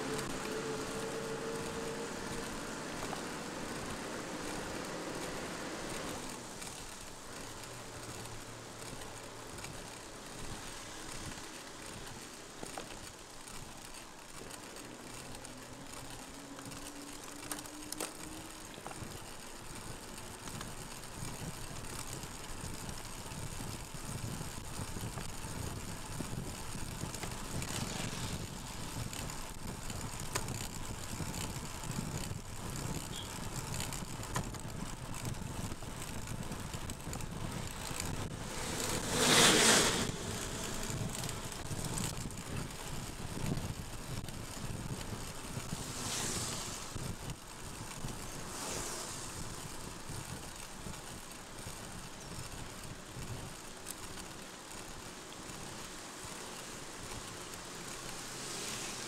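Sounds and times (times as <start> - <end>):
tyres hissing on wet road: 0.0 - 13.4, 37.6 - 41.8, 45.0 - 47.3, 48.0 - 50.2, 52.6 - 59.0
wind: 0.0 - 59.0.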